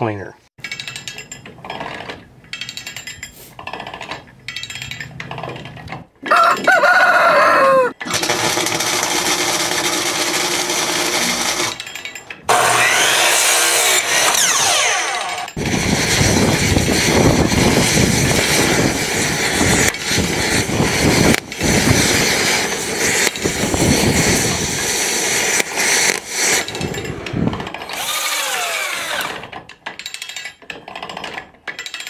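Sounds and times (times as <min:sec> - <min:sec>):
rooster crowing: 0:06.3 - 0:08.1
power tool whining: 0:08.0 - 0:11.8, 0:12.5 - 0:26.9, 0:27.7 - 0:29.6
dense machine noise: 0:12.5 - 0:29.4.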